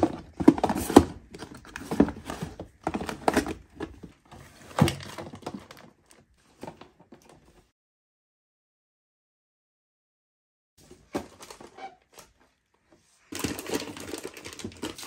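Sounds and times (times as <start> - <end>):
plastic sachets crinkling: 13.2 - 15.0.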